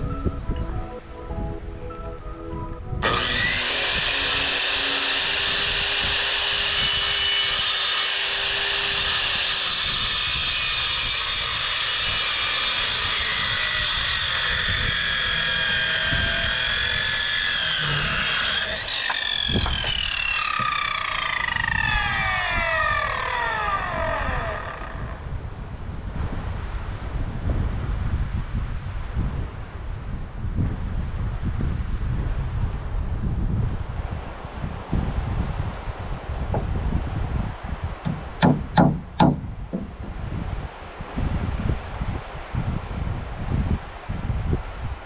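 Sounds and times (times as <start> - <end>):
circular saw cutting wood: 3.0 - 25.3.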